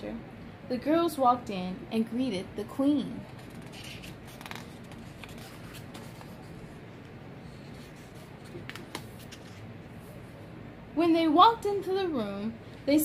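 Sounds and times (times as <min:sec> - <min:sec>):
book page turning: 0:03.3 - 0:06.7, 0:07.5 - 0:09.7.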